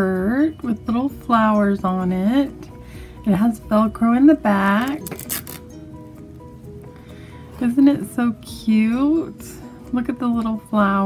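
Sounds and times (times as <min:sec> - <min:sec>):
quiet background music: 0:00.0 - 0:11.0
velcro fabric crackling rustle: 0:04.8 - 0:05.8.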